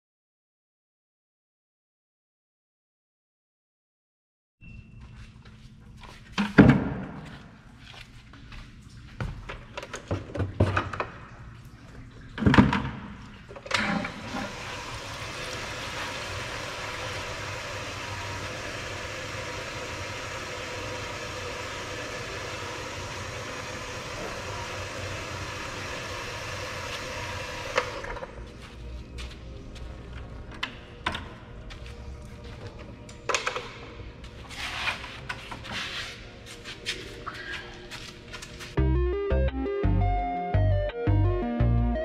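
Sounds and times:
bucket and hose knocks: 6.4 - 7.2.

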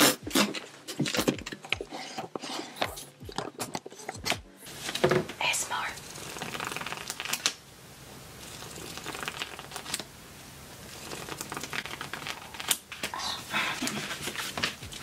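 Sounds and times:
book pages riffling: 13.9 - 15.0.

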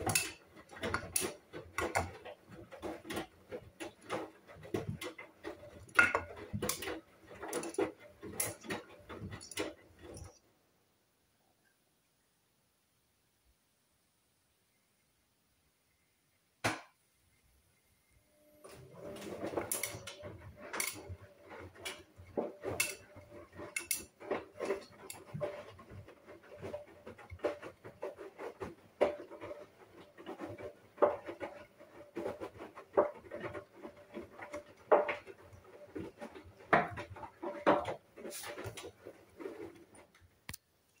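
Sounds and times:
laundry clanking in washing machine drum: 0.0 - 10.4, 18.7 - 40.2.

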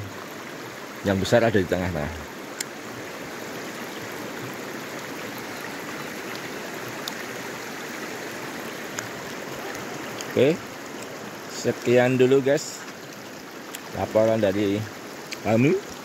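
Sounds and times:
river water rushing over shallows: 0.0 - 16.0
faint ticks: 2.5 - 2.8, 6.3 - 7.2, 8.9 - 11.1, 15.2 - 15.5.

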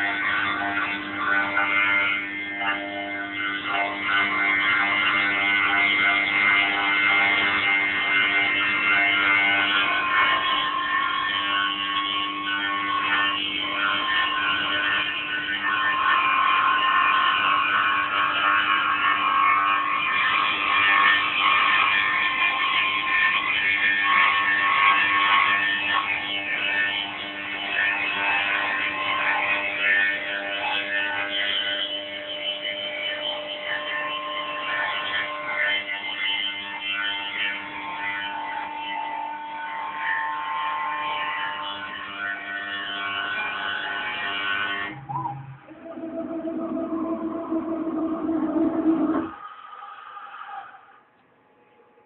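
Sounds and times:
higher machine tone: 44.9 - 49.4
milling machine whine: 44.9 - 49.4.

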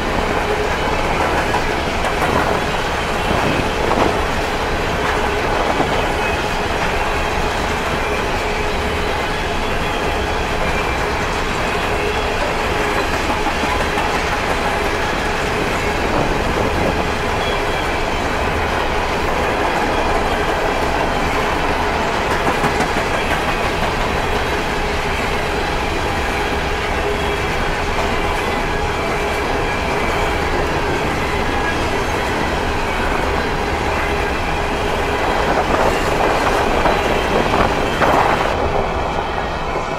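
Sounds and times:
freight train wheels rolling: 0.0 - 39.9.

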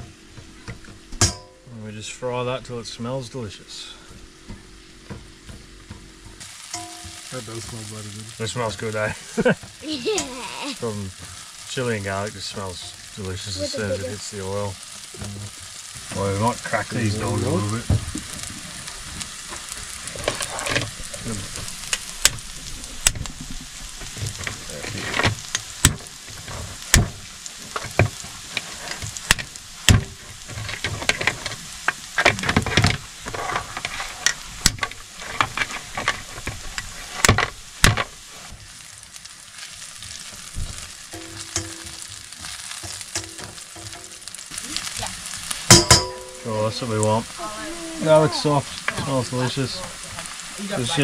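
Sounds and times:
sizzling in hot oil: 0.0 - 51.0
utensil scraping a pan: 17.0 - 22.1, 27.6 - 29.4, 30.0 - 38.6
crab shells cracking: 18.0 - 46.4.

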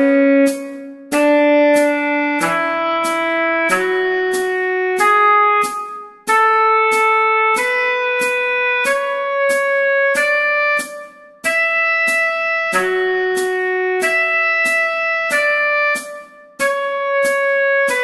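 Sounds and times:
steady metronome click: 0.0 - 18.0
tenor saxophone melody: 0.0 - 18.0.

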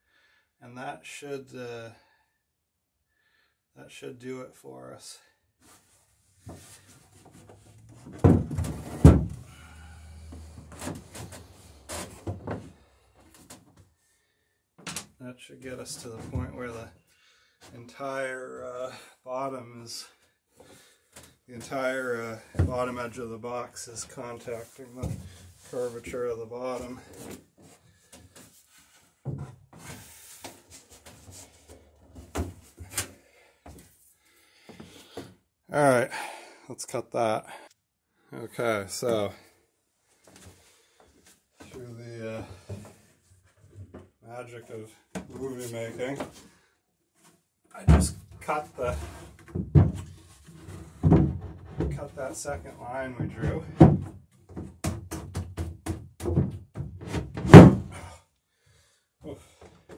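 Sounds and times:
light wooden taps and scrapes: 6.5 - 7.7
wooden knocks and rubbing: 6.5 - 13.6, 47.9 - 57.9
heavy wooden thumps: 7.9 - 12.8, 47.9 - 50.2, 50.9 - 52.0, 53.2 - 58.1.

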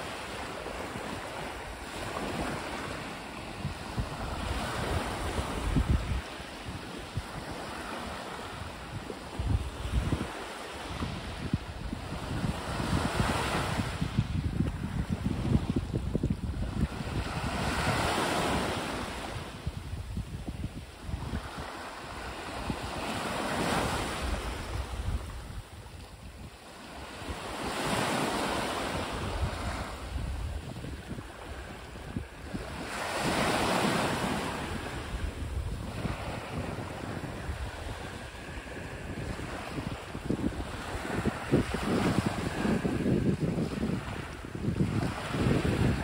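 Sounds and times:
waves washing up a beach: 0.0 - 46.0
wind buffeting microphone: 0.0 - 46.0.

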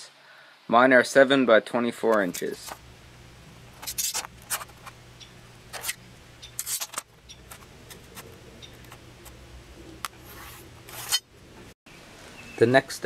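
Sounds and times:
low hum: 2.3 - 11.8
steel ruler sliding: 3.8 - 4.7, 6.6 - 8.2, 10.3 - 11.3
pencil scraping on plywood: 10.2 - 11.2.

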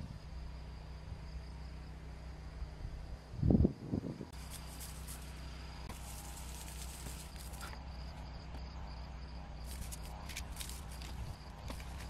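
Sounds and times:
insects trilling: 0.0 - 12.0
leaves and grass rustling: 4.3 - 8.2, 9.6 - 12.0.

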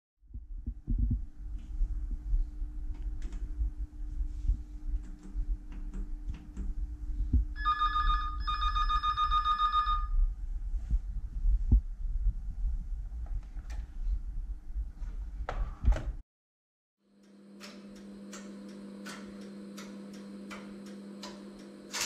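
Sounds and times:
low steady hum: 0.2 - 16.2
electronic telephone ringer trilling: 7.6 - 10.2.

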